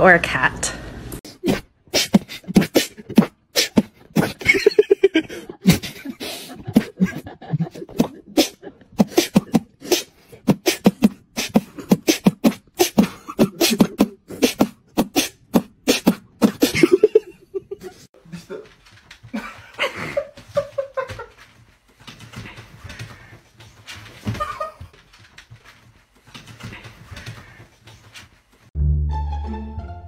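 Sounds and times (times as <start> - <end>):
person beatboxing: 1.3 - 4.4, 6.6 - 16.9.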